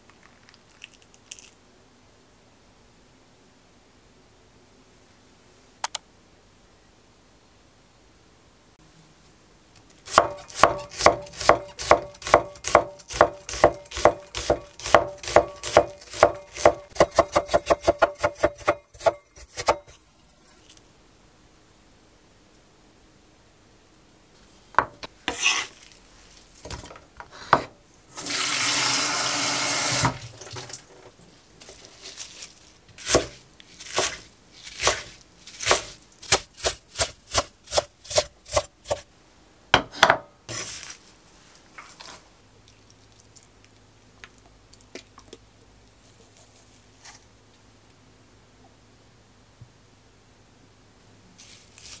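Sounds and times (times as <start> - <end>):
knife chopping on wooden board: 10.1 - 20.0, 33.0 - 39.0
kitchen tap running: 28.2 - 30.8.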